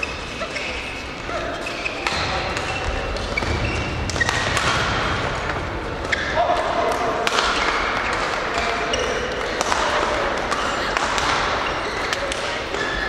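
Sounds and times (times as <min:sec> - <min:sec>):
shoes squeaking on floor: 0:00.0 - 0:04.6, 0:06.0 - 0:06.4, 0:07.5 - 0:09.6, 0:10.5 - 0:13.0
rackets hitting shuttlecocks: 0:01.8 - 0:13.0.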